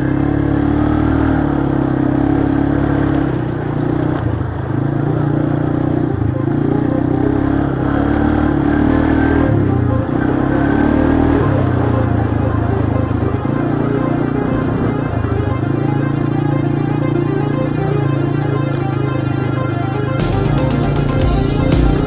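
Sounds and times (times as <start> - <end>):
quad bike engine revving: 0.0 - 16.9.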